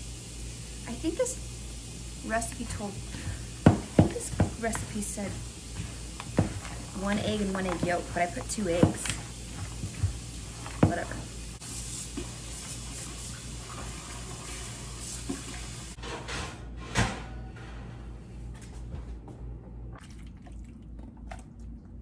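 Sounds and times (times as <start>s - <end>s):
tap running water into pot: 2.5s - 11.3s, 12.1s - 15.8s.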